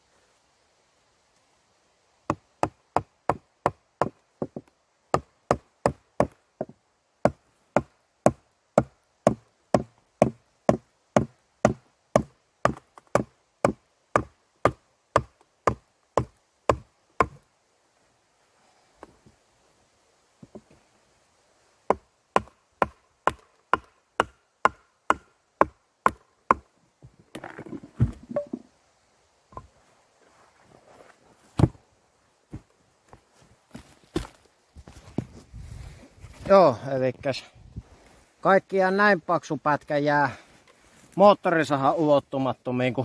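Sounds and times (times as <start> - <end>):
hatchet knocking wooden wedge: 2.3 - 17.4, 21.9 - 26.6.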